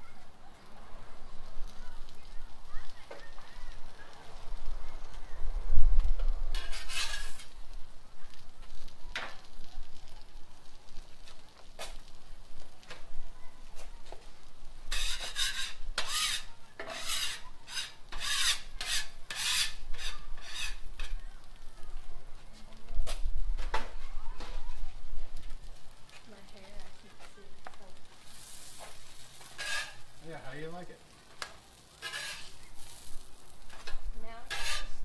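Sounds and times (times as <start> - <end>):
spatula scraping steel griddle: 6.5 - 7.7, 12.8 - 21.6, 27.1 - 35.0.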